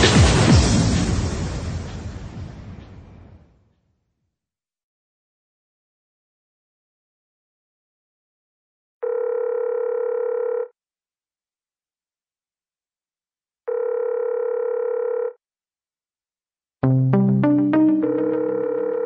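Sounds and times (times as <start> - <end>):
music: 0.0 - 2.7, 16.8 - 19.0
telephone ringback beeps: 18.0 - 19.0.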